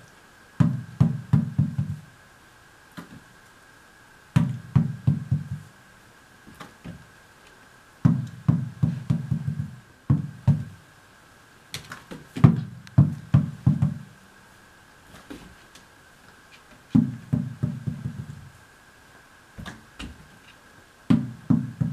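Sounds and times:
tennis ball bouncing on wood floor: 0.6 - 2.0, 4.4 - 5.7, 8.0 - 10.8, 11.8 - 14.1, 16.9 - 18.5, 21.1 - 21.9.

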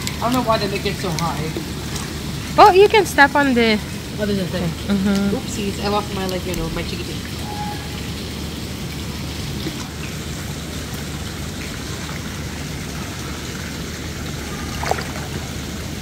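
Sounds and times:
water splashing into pool: 6.0 - 16.0.

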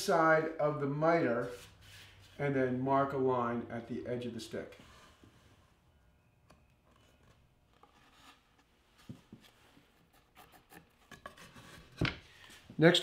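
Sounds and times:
wood being handled: 6.4 - 12.8.

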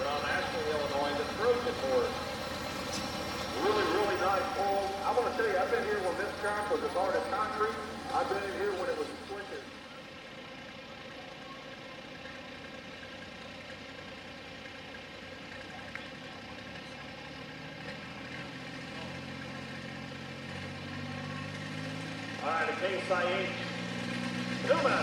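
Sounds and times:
diesel tractor engine idling: 0.0 - 25.0.

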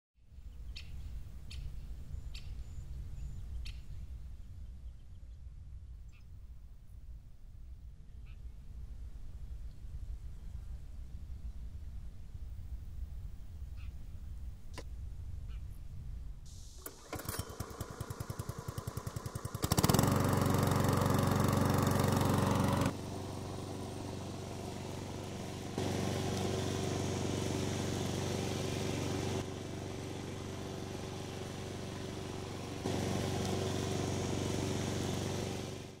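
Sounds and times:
lawn mower engine starting: 16.5 - 36.0.

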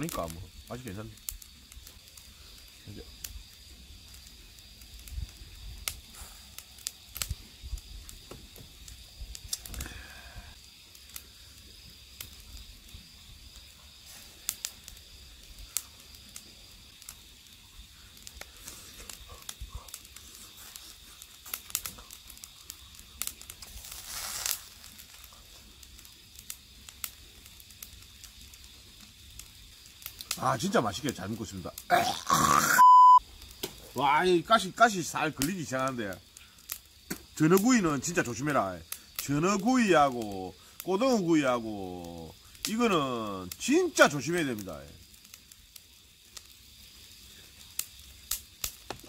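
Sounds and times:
small clicks and crackles: 0.0 - 12.7, 13.5 - 31.9, 35.4 - 41.2, 43.5 - 49.0
short hissing burst: 6.0 - 7.5, 9.1 - 10.6, 23.6 - 25.1
faint steady high tone: 32.7 - 33.2.

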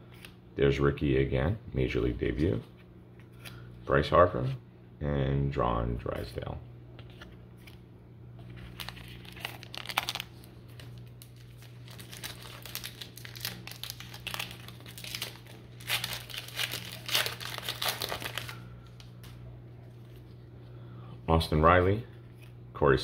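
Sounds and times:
card pack wrapper crinkling: 8.6 - 19.4.

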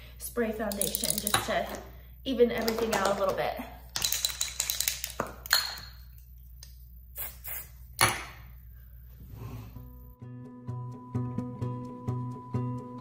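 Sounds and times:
spray bottle hissing: 7.2 - 7.8
background music: 9.8 - 13.0.

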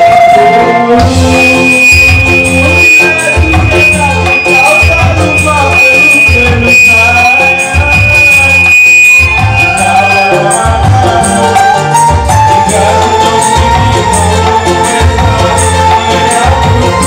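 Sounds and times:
steady high tone: 1.1 - 11.4
loud dance music: 1.1 - 11.9.

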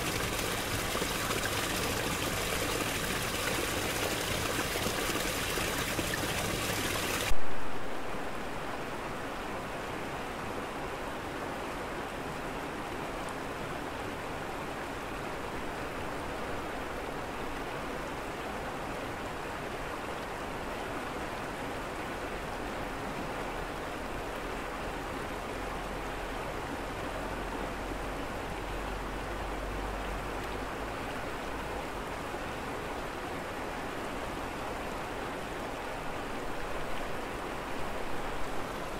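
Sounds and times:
water running over rocks: 0.0 - 7.3.

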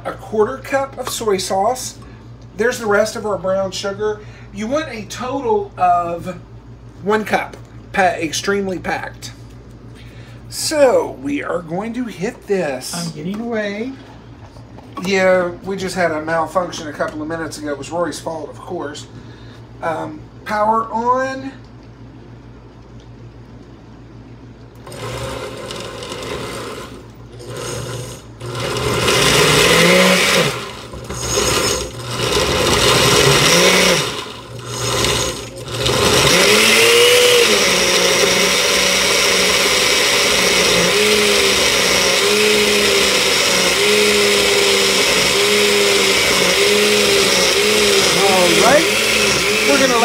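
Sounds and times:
blender pureeing thick mix: 24.8 - 50.0.

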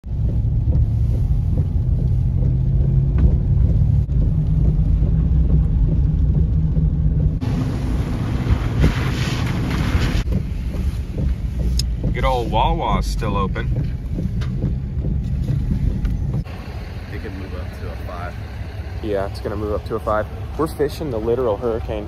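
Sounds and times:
car cabin engine and tyre rumble: 0.0 - 22.0.

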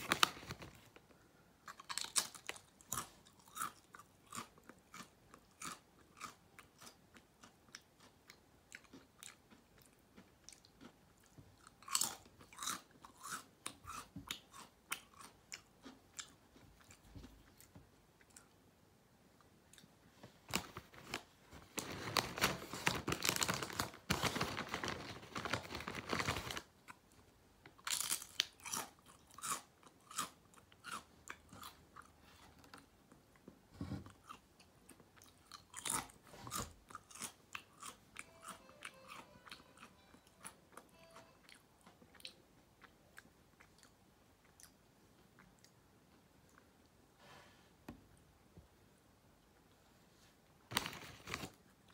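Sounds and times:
chips crunching: 27.7 - 32.1.

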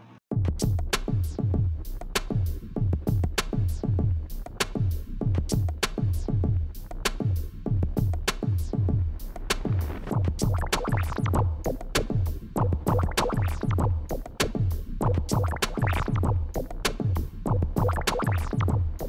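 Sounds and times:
electronic drum-machine beat: 0.3 - 19.0
clap or hi-hat hits: 0.6 - 19.0
deep bass-drum hits: 12.6 - 14.2.

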